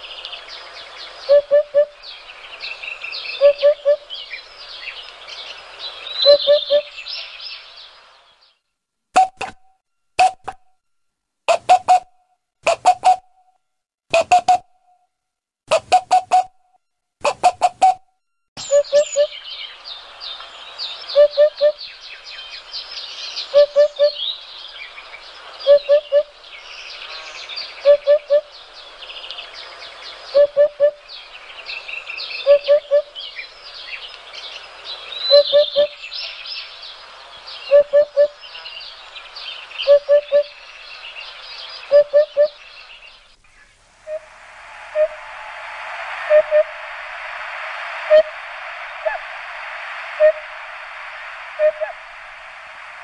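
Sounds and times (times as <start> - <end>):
birds chirping and trilling: 0.0 - 8.6, 18.6 - 53.0
low three-note bird call: 18.6 - 20.5, 44.0 - 49.4, 50.0 - 52.1.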